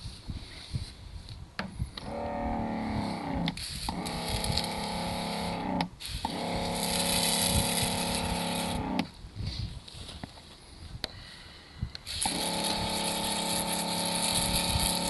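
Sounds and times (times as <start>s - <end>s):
electric pump humming: 1.6s - 9.2s, 12.0s - 15.0s
water spray hissing: 3.0s - 9.0s, 12.0s - 15.0s.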